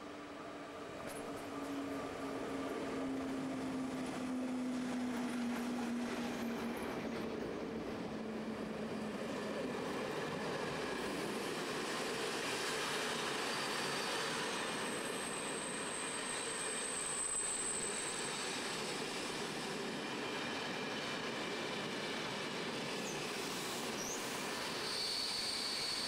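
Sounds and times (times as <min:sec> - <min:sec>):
train wheels rumbling on rail: 0:00.0 - 0:26.0
high wheel squeal: 0:13.2 - 0:19.2, 0:22.9 - 0:26.0.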